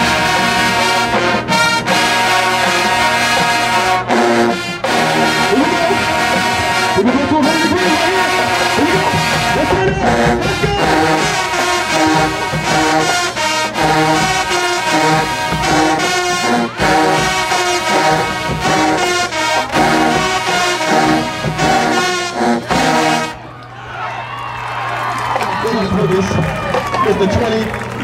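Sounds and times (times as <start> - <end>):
drumline beat: 0.0 - 23.4, 24.7 - 28.0
brass instruments playing: 0.0 - 23.6.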